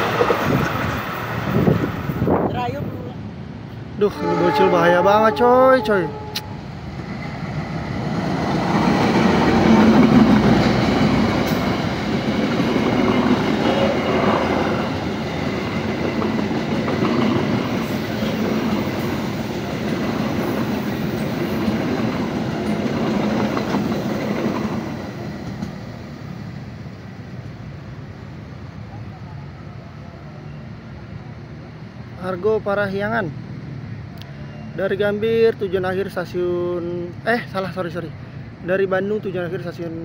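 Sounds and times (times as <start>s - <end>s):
train wheels on rails: 0.0s - 3.0s, 6.3s - 27.7s
diesel locomotive passing: 0.0s - 40.0s.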